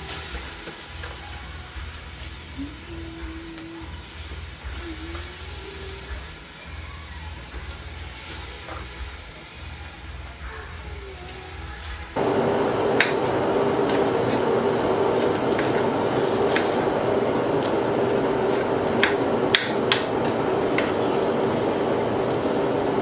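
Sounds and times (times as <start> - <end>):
steady rushing hum: 12.2 - 23.0.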